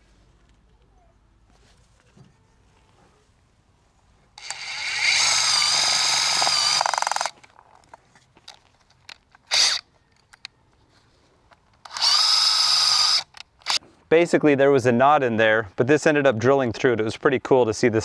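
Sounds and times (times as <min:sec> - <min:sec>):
impact driver motor whirring: 0:04.4 - 0:07.4, 0:11.8 - 0:13.8
impact driver rapid hammering: 0:04.5 - 0:07.3.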